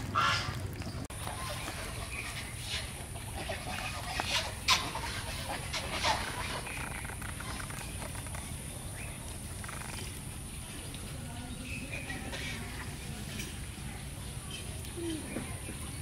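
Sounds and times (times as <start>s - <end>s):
poultry harsh calls: 0.0s - 0.6s, 1.2s - 8.3s.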